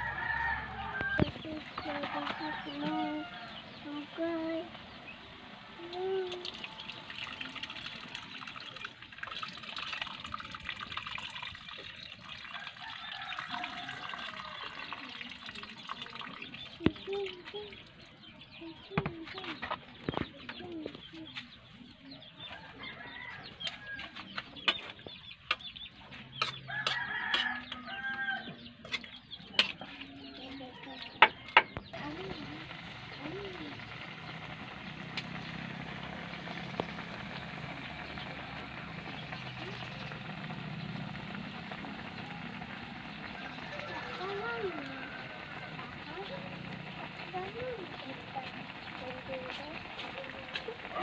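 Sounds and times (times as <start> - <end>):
liquid pouring into a wok: 5.9 - 17.0, 32.0 - 51.0
sharp clicks and pops: 33.2 - 42.8.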